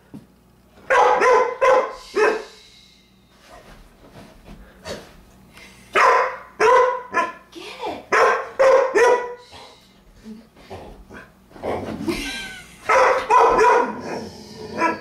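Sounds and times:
dog barking: 0.9 - 2.5, 6.0 - 7.4, 8.1 - 9.4, 12.9 - 14.0.

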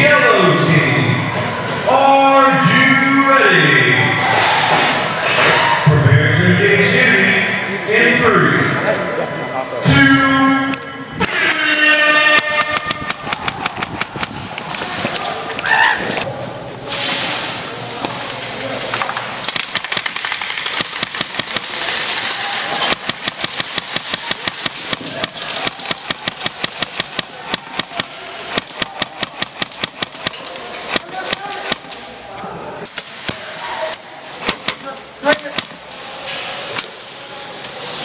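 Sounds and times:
airsoft guns firing: 11.2 - 15.4, 19.4 - 32.0, 34.4 - 35.8.

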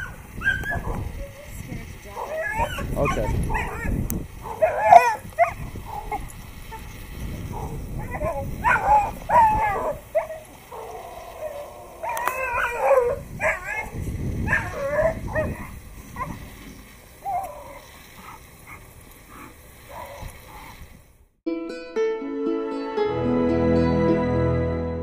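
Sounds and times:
dog barking and yelping: 0.0 - 1.1, 2.2 - 6.9, 7.5 - 16.4
soft instrumental music: 21.5 - 25.0.

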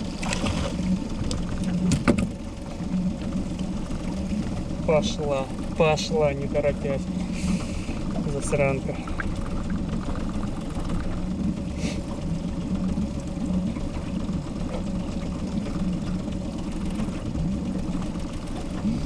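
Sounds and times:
boat motor idling: 0.0 - 19.0.

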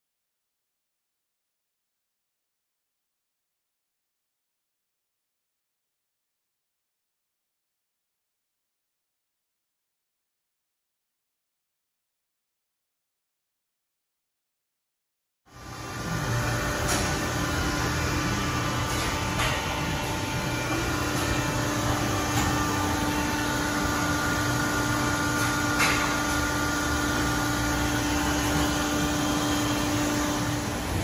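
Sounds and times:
car wash machinery humming: 15.5 - 31.0.

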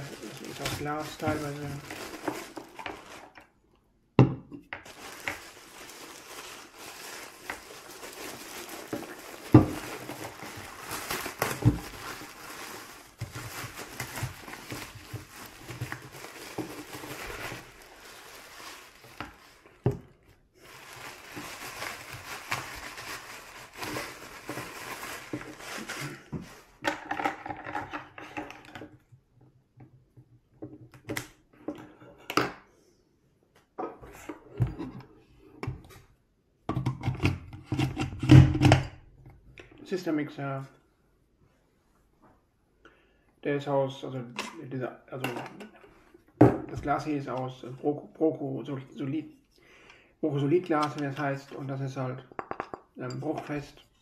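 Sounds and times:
packaging wrap crinkling: 0.0 - 3.5, 4.8 - 26.8.

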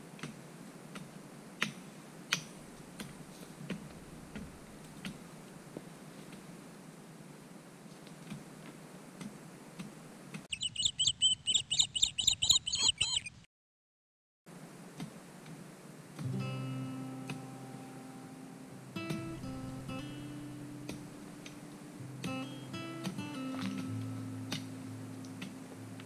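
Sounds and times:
rapid high chirping: 10.5 - 13.5
acoustic guitar music: 16.2 - 26.0.

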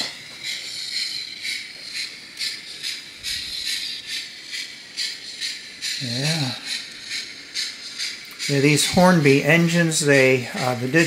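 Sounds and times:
model locomotive steam chuffs: 0.0 - 11.0
steady hiss: 0.0 - 11.0.

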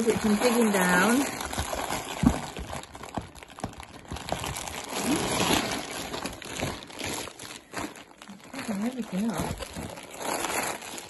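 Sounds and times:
plastic bags crinkling: 0.0 - 11.0
plastic mailer bag rustling: 0.0 - 11.0.

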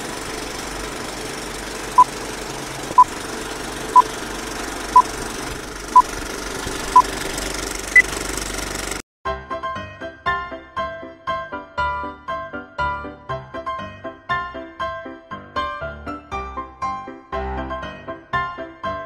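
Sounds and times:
film projector clattering: 0.0 - 9.0
music: 9.2 - 19.0.

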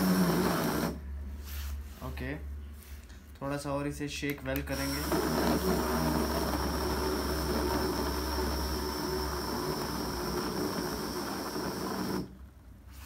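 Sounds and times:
portable blender motor running: 0.0 - 1.0, 4.7 - 12.4.

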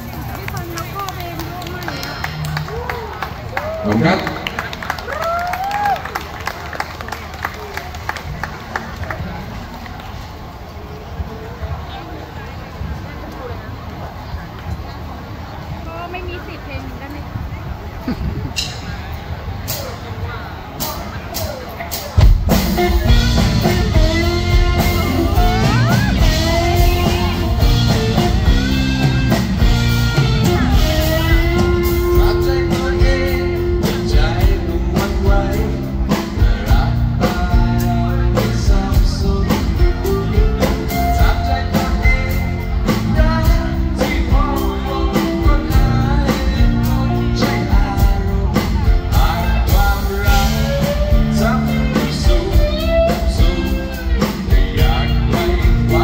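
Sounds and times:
live band playing: 0.0 - 10.4, 18.4 - 56.0
man singing: 22.7 - 29.7, 30.4 - 56.0.

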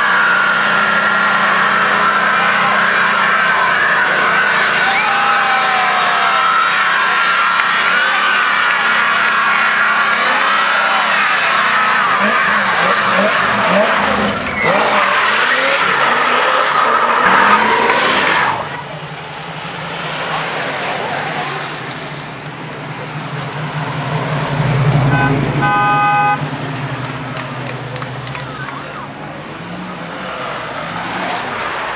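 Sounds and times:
car engine revving: 0.0 - 31.9
car engines rumbling: 0.0 - 31.9
tyres squealing: 0.1 - 18.8.

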